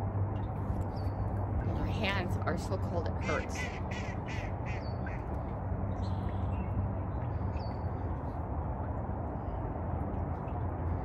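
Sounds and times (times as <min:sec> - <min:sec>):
faint constant hum: 0:00.0 - 0:11.0
low outdoor rumble: 0:00.0 - 0:11.0
faint bird calls: 0:03.2 - 0:08.3.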